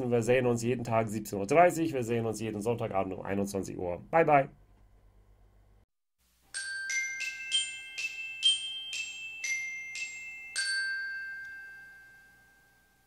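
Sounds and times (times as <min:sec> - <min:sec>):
bell-like jingle: 0:06.5 - 0:13.0.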